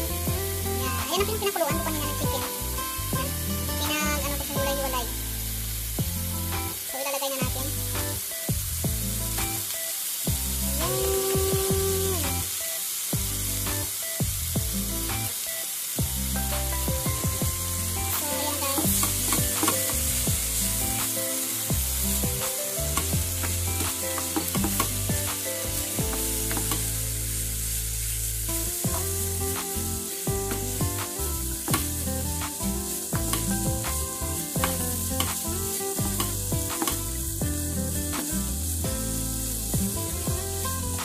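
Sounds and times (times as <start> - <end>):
vegetables sizzling: 0.0 - 41.0.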